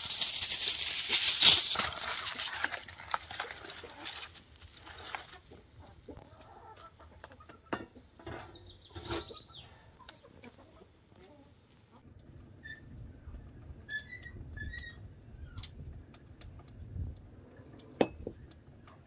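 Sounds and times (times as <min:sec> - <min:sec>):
rustling scratching hiss: 0:00.0 - 0:05.4
chickens clucking: 0:05.2 - 0:12.0.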